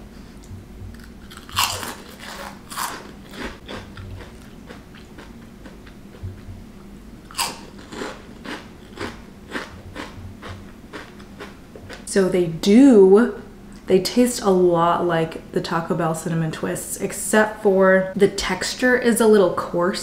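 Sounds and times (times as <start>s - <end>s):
crunchy snack bites: 1.0s - 5.9s, 7.3s - 10.2s
chewing crunches: 1.0s - 6.5s, 7.3s - 12.1s.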